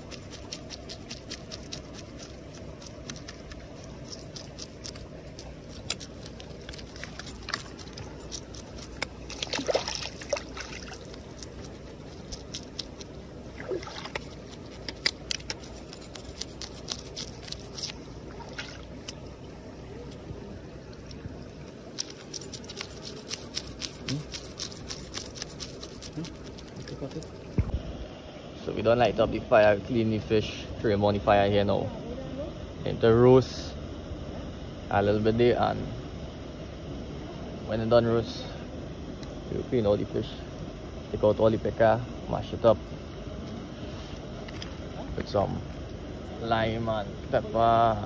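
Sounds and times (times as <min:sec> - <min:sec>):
blade scraping fish scales: 0:00.0 - 0:13.1, 0:14.1 - 0:18.1, 0:21.9 - 0:27.0
stream water trickling: 0:00.0 - 0:31.9, 0:40.8 - 0:48.0.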